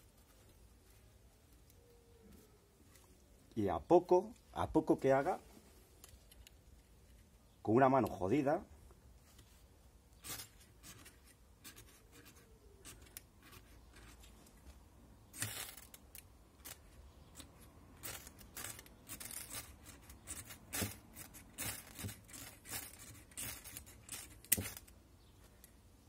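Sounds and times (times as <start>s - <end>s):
ferro rod scraping: 15.3s - 24.9s.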